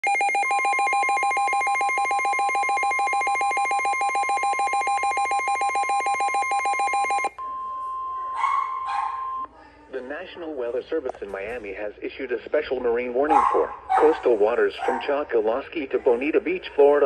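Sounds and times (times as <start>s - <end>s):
rapid electronic alarm beeping: 0.0s - 7.4s
steady warning tone: 0.0s - 7.4s.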